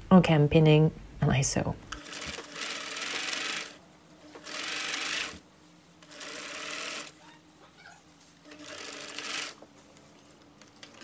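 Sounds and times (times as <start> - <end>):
sewing machine stitching: 2.0 - 3.8, 4.4 - 5.4, 6.0 - 7.2, 8.5 - 9.6.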